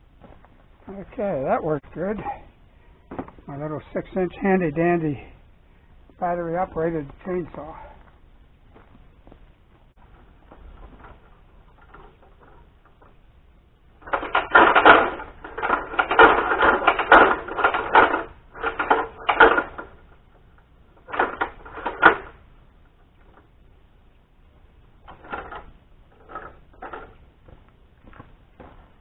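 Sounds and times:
ladder clattering and rattling: 0:10.0 - 0:13.2, 0:14.0 - 0:22.4, 0:25.0 - 0:27.2.

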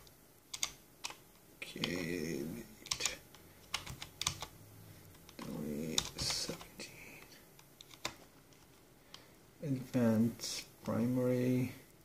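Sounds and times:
computer keyboard key clicks: 0:00.5 - 0:01.2, 0:02.9 - 0:04.5.

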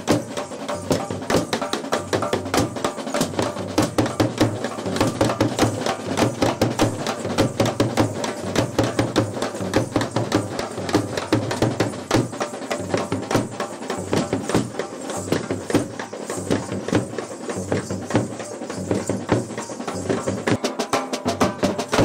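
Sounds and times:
drum band playing fast rhythm: 0:00.0 - 0:22.0.

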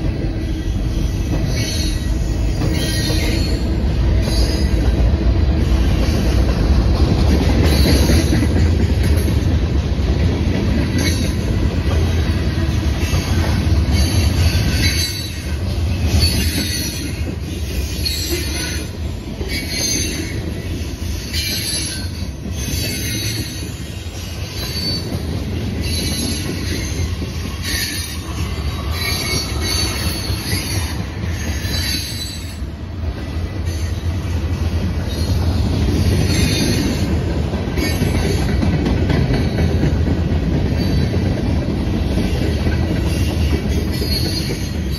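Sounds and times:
freight train rolling past: 0:00.0 - 0:44.9
wheel squeals: 0:00.9 - 0:04.8, 0:13.0 - 0:32.6, 0:43.1 - 0:44.9.

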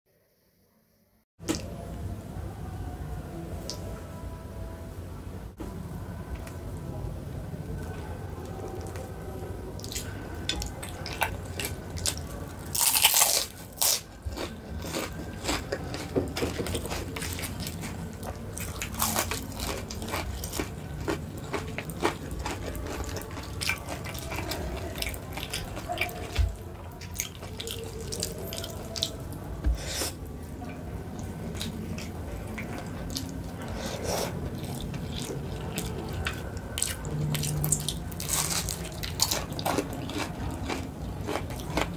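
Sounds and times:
person eating crunchy food: 0:09.8 - 0:30.2, 0:31.2 - 0:41.9.

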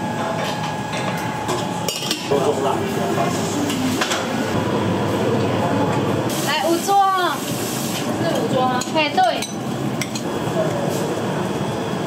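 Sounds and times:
dishes and utensils clinking: 0:00.4 - 0:02.6, 0:08.3 - 0:10.3.

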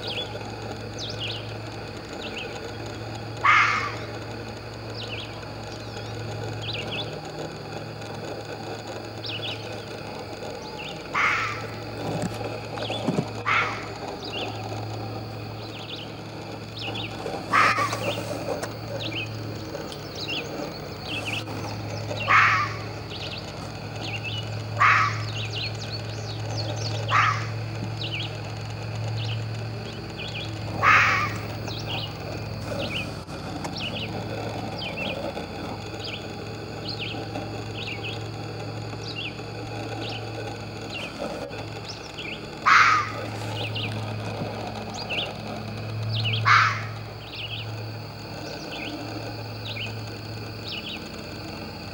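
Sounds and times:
small birds chirping: 0:00.0 - 0:51.9
fox barking: 0:03.4 - 0:04.3, 0:09.6 - 0:12.2, 0:13.3 - 0:14.8, 0:16.8 - 0:25.8, 0:26.5 - 0:27.8, 0:30.4 - 0:33.2, 0:42.6 - 0:43.9, 0:46.2 - 0:47.4.

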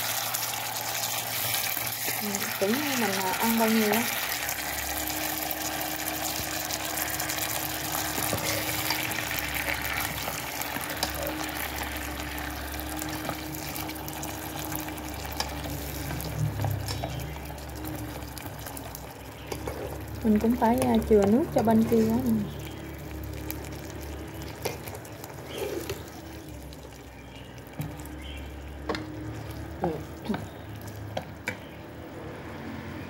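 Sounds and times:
sauce simmering hiss: 0:00.0 - 0:31.0.

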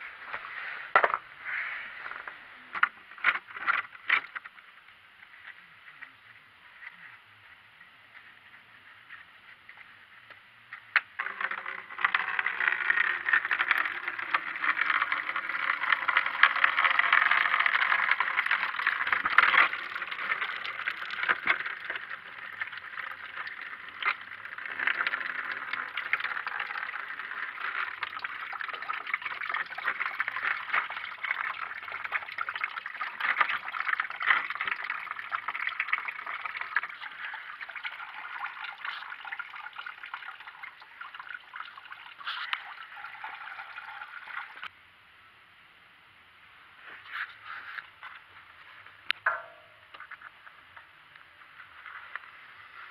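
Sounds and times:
coolant pouring and splashing: 0:11.0 - 0:44.7.

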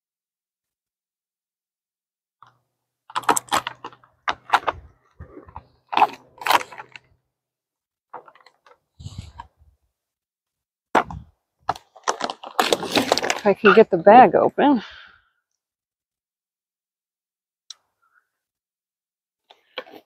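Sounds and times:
plastic bag crinkling: 0:11.7 - 0:13.7.

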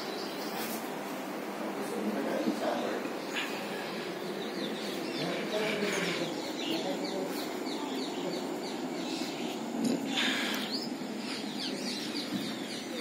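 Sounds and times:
steady background noise: 0:00.0 - 0:13.0.

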